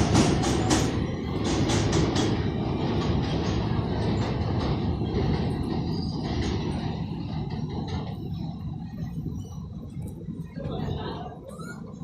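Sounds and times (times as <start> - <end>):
wheel clacks over rail joints: 0.0 - 9.2
train rumble: 0.0 - 12.0.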